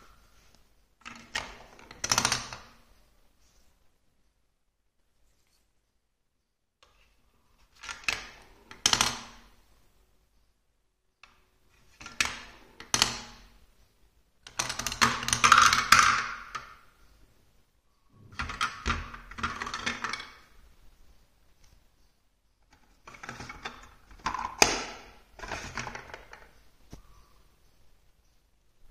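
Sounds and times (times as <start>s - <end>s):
plastic balls rolling in marble run: 14.5s - 16.8s, 18.4s - 20.5s.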